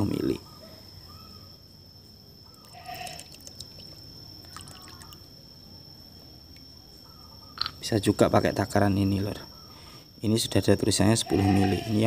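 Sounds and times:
liquid dripping into water: 2.5s - 5.3s.

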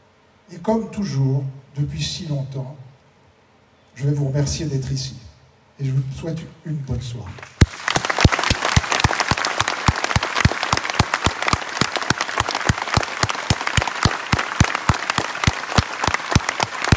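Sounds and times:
crowd applauding: 7.4s - 16.9s
person clapping close by: 7.4s - 16.9s.

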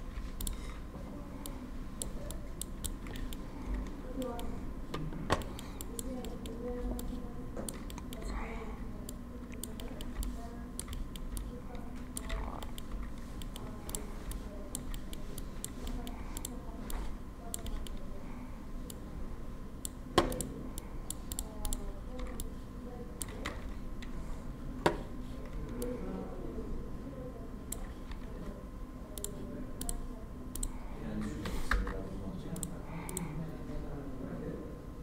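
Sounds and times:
mouse and keyboard clicks: 1.4s - 4.5s, 5.3s - 8.4s, 9.1s - 18.0s.

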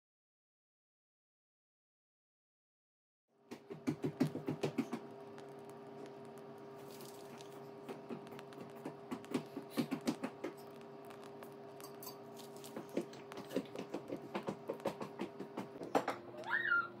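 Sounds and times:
faint steady hum: 3.4s - 17.0s
toddler footsteps clicking: 6.3s - 16.0s.

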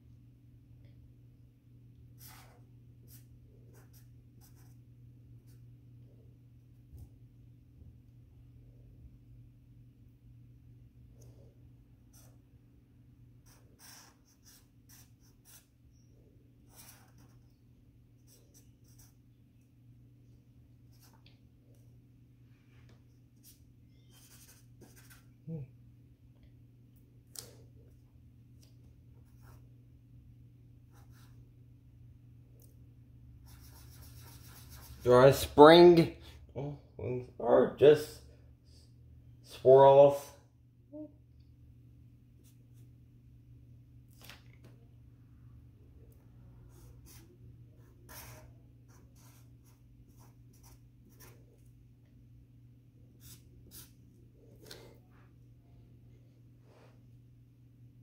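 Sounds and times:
low steady hum: 0.0s - 58.0s
marker scratching on paper: 2.2s - 5.6s, 12.0s - 12.4s, 13.4s - 17.6s, 18.2s - 19.2s, 23.4s - 25.3s, 30.9s - 31.4s, 33.4s - 35.4s, 46.7s - 51.6s, 53.2s - 54.0s.

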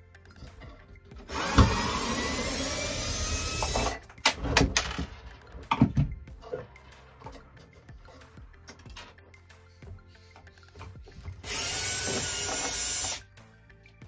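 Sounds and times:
cordless drill spinning: 1.3s - 4.0s, 11.4s - 13.2s.

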